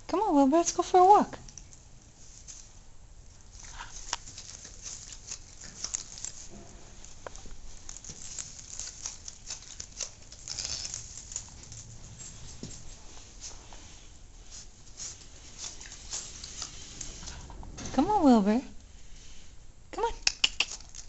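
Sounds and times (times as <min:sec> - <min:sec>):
straw rustling and crackling: 0:00.7 - 0:17.6.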